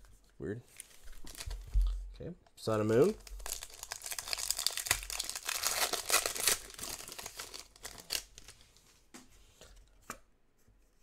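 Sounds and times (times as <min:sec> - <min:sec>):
foil wrapper crinkling and tearing: 0:03.0 - 0:08.6.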